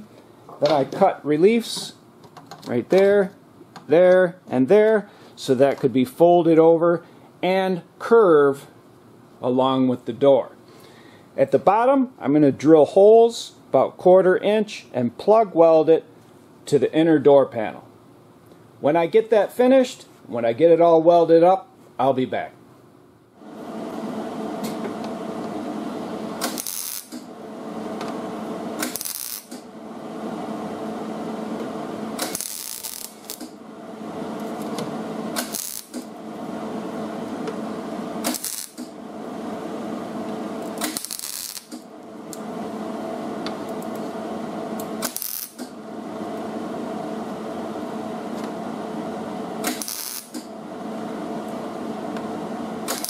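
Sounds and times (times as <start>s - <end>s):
welder crackling and buzzing: 23.4s - 53.0s.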